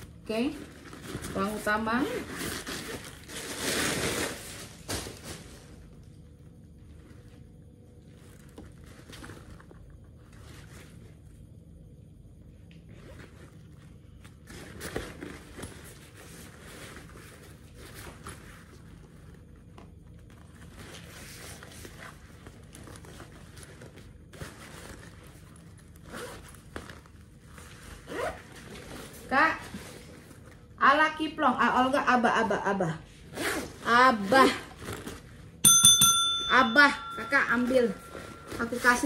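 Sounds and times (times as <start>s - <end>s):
backpack zippers pulled: 28.0s - 28.5s.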